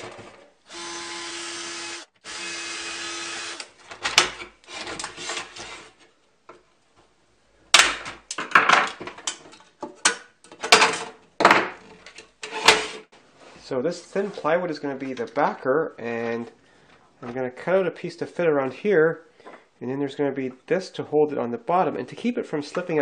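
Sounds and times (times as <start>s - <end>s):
cordless drill drilling rivets: 0.7s - 3.7s.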